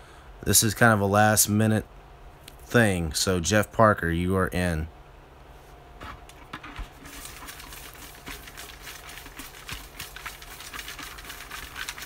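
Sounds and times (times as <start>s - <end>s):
paper slips rustling in a bucket: 6.6s - 12.0s.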